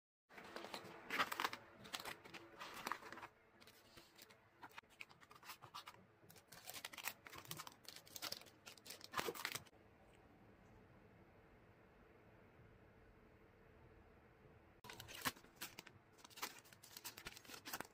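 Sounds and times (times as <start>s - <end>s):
plastic bags and paper crinkling: 0.3s - 9.7s, 14.8s - 17.9s.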